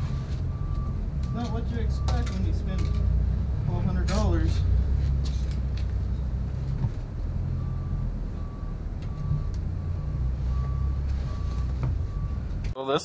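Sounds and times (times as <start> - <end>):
reversing alarm beeping: 0.0 - 3.2, 7.5 - 12.5
heavy vehicle engine rumbling: 0.0 - 12.8.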